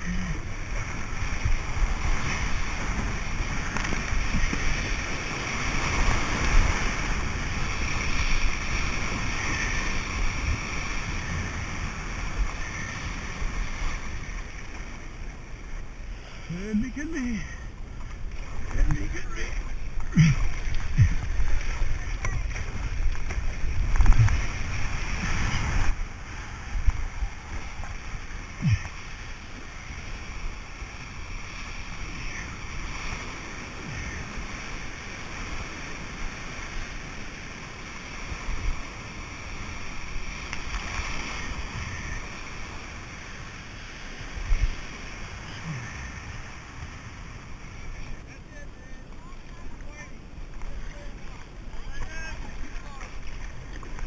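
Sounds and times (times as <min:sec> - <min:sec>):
paddle strokes splashing: 0:00.0 - 0:54.0
rushing water: 0:00.0 - 0:54.0
wind rumble on microphone: 0:17.6 - 0:48.3.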